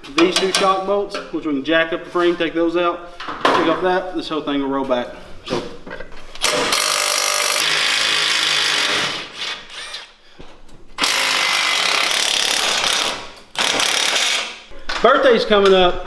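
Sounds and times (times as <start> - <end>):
impact wrench hammering: 11.0 - 14.6.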